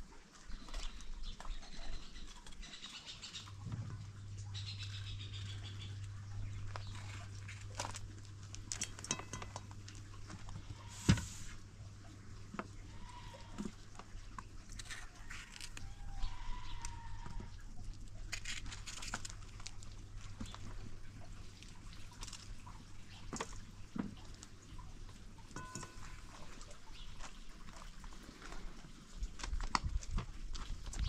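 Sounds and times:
low steady hum: 0.0s - 31.0s
livestock bleating: 12.9s - 13.6s.

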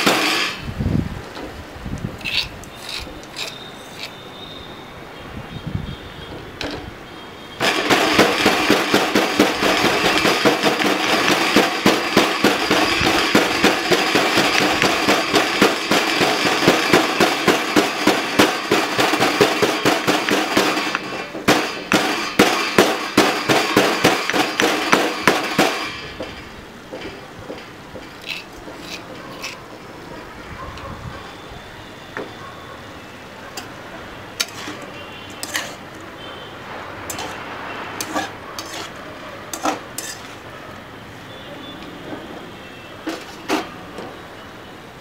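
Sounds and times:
pestle pounding in stone mortar: 0.0s - 0.6s, 2.2s - 4.1s, 7.6s - 29.6s, 34.4s - 34.8s, 37.1s - 37.4s, 38.0s - 40.4s
metal spoon scraping stone mortar: 2.2s - 4.6s, 7.6s - 26.3s, 28.1s - 29.7s, 34.4s - 36.0s, 37.1s - 40.5s, 43.1s - 43.8s.

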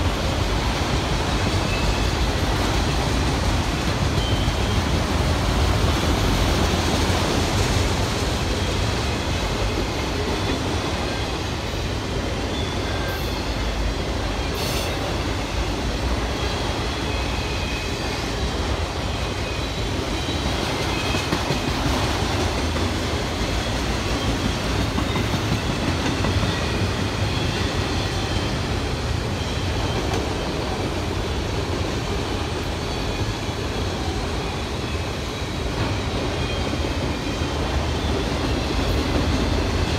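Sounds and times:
train wheels rumbling on rails: 0.0s - 39.9s.

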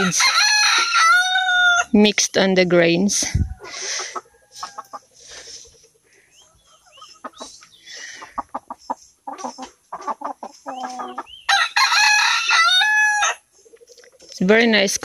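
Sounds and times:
hens clucking: 3.0s - 14.6s.

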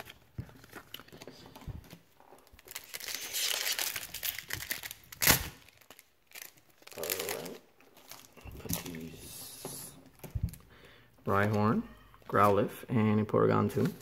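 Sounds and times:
plastic wrapper crinkling: 0.0s - 9.2s
wrapper tearing open: 2.4s - 9.1s.

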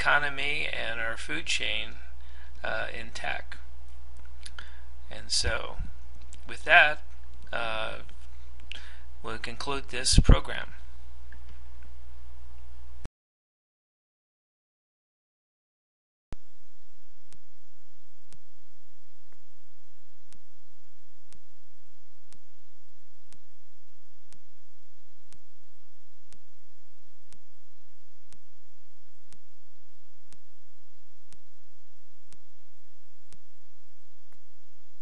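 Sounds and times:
low hum: 0.0s - 13.1s, 16.4s - 35.0s
steady hiss: 4.4s - 10.9s
sharp clicks: 31.2s - 31.6s.

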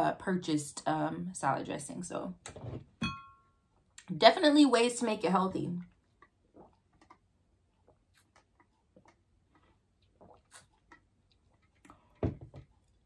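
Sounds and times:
mouth and swallowing sounds: 5.9s - 13.0s
sipping through a straw: 10.2s - 10.9s.

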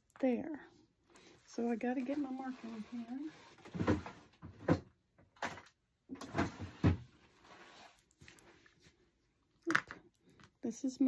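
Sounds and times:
knocks and rattles of rummaging: 1.7s - 7.4s.

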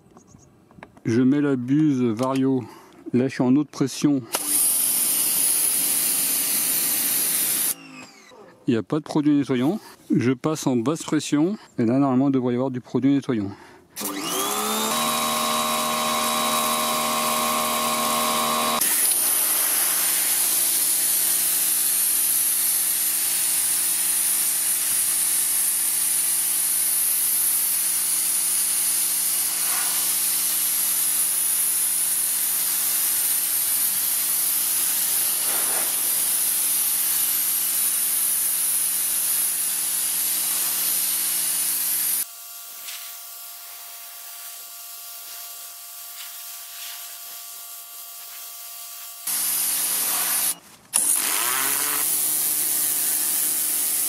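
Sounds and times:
pressure washer motor humming: 4.3s - 8.2s, 14.0s - 42.2s, 49.2s - 54.0s
water jet hissing on concrete: 4.7s - 7.8s, 18.8s - 42.2s, 49.2s - 54.0s.

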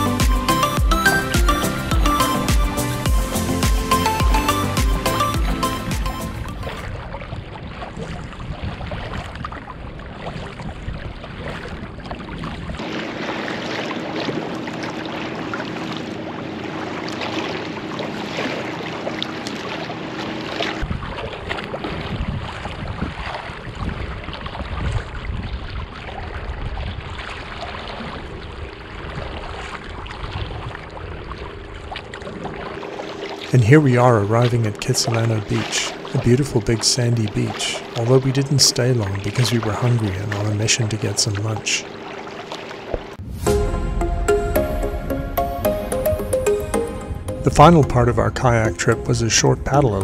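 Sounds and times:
paddles splashing in water: 1.4s - 50.0s
wind rumbling on microphone: 6.4s - 13.5s, 20.8s - 32.8s.

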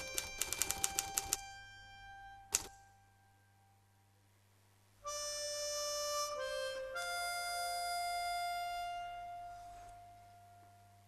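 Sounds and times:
slow reed instrument notes: 5.0s - 11.0s.

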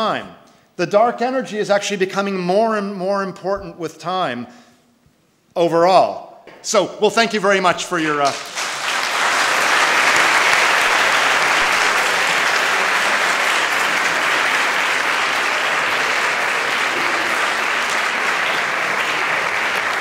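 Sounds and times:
audience applauding: 8.0s - 20.0s.

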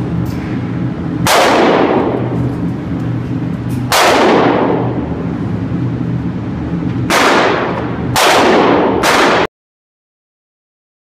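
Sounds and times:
steady low hum: 0.0s - 9.5s
gunshots with reverberant tail: 1.2s - 2.5s, 3.9s - 5.2s, 7.1s - 9.5s.

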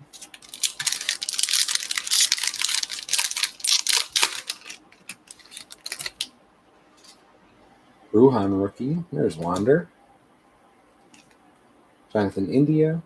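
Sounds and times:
foil wrapper crinkling: 0.0s - 6.3s.

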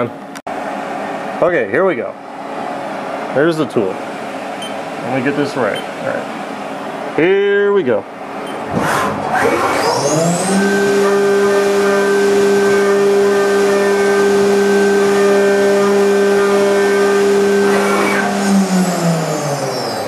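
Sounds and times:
milling machine spindle whine: 9.3s - 20.0s.

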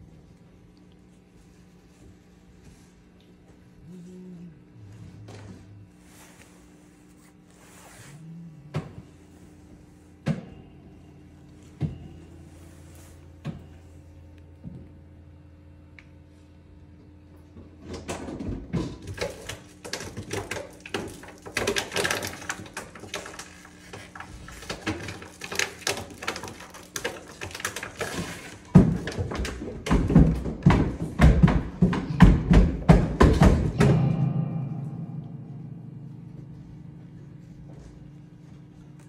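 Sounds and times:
low ringing tone: 8.2s - 15.4s, 33.8s - 39.0s
sharp percussion strikes: 33.8s - 36.8s.

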